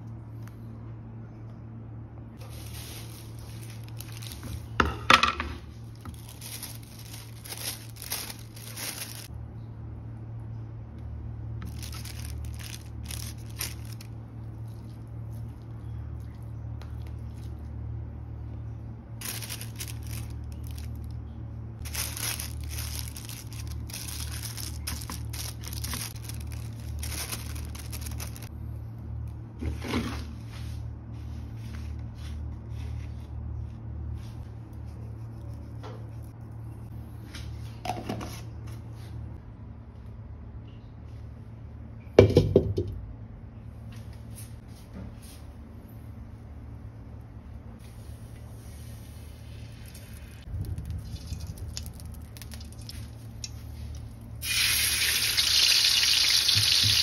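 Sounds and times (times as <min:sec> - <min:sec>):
low hum: 0:00.0 - 0:37.8, 0:42.8 - 0:55.3
plastic bag crinkling: 0:02.4 - 0:04.8, 0:05.8 - 0:09.3, 0:11.6 - 0:17.6, 0:19.2 - 0:21.2, 0:21.8 - 0:28.5, 0:50.4 - 0:53.9.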